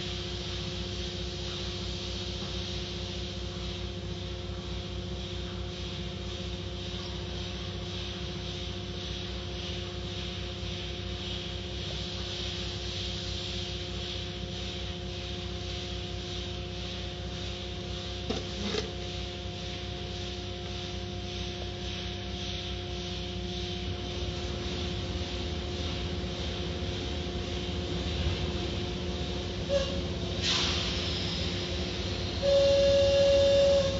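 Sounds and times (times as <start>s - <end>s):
machine hum with low throb: 0.0s - 33.9s
even hiss: 29.7s - 33.9s.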